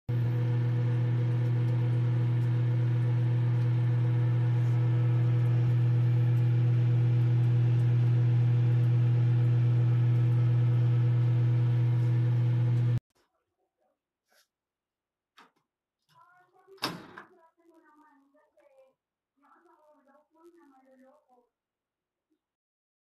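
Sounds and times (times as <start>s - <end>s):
microwave oven humming: 0.1s - 13.0s.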